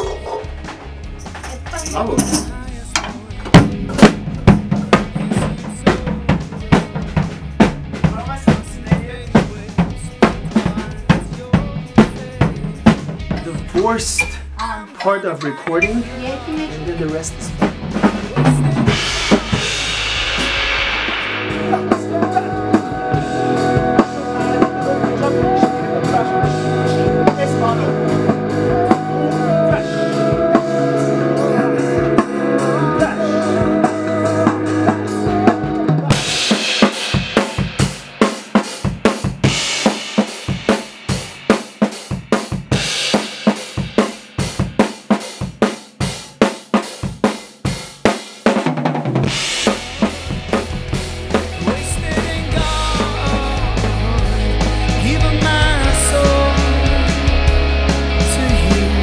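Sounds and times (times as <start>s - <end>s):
bass: 0.0s - 15.0s, 15.6s - 36.6s, 49.2s - 59.0s
rock drum kit groove: 0.0s - 59.0s.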